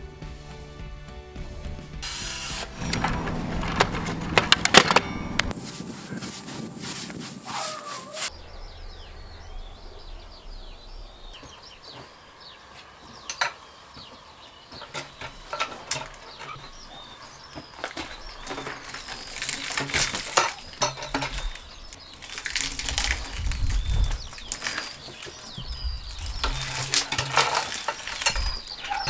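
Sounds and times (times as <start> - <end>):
small birds chirping: 2.8 - 29.0
metal hook clanking on log: 3.8 - 5.6, 19.5 - 21.6, 26.3 - 29.0.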